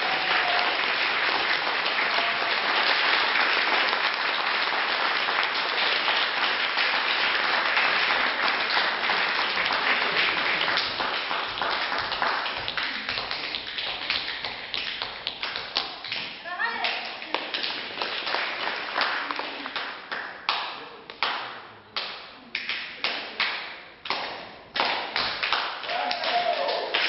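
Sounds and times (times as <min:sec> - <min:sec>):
audience applauding: 0:00.0 - 0:15.6, 0:17.2 - 0:20.6, 0:24.8 - 0:27.0.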